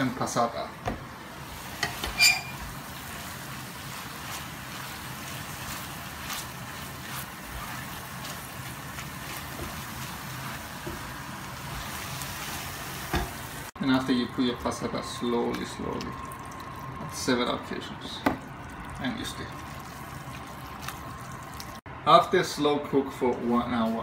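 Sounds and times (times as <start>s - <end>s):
meat sizzling in a frying pan: 1.3s - 14.2s.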